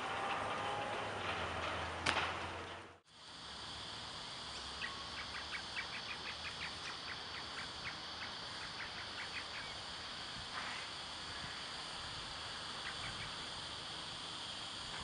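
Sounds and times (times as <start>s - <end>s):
outdoor ambience hiss: 0.0s - 15.0s.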